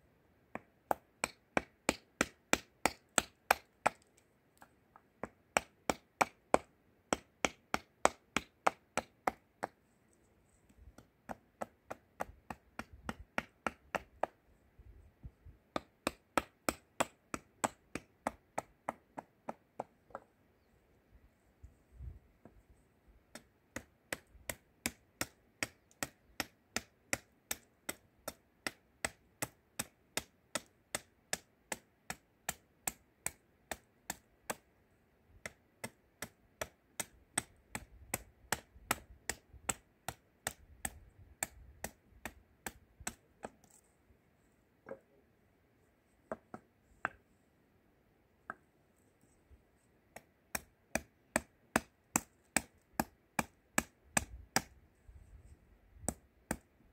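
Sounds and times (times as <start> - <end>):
hatchet chopping wood: 0.5 - 9.8, 10.9 - 14.4, 15.7 - 20.2, 23.3 - 34.7, 35.4 - 43.6, 50.2 - 54.8, 56.0 - 56.7.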